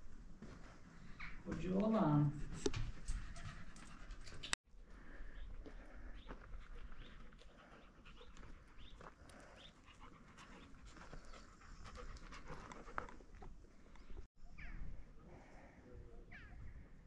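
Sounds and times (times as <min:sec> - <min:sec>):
dog panting: 0:02.4 - 0:04.6, 0:06.1 - 0:13.6.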